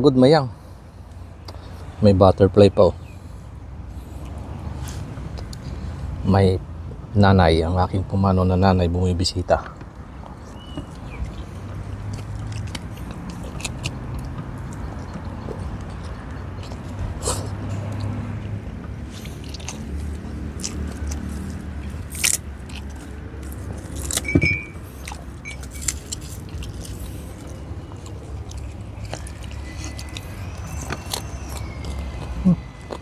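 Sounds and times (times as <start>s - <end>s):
chewing and mouth smacks: 10.2s - 33.0s.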